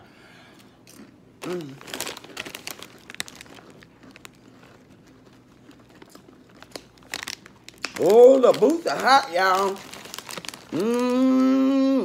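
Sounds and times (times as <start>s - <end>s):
person humming briefly: 1.4s - 1.8s, 10.7s - 12.0s
foil bag crinkling: 1.4s - 11.6s.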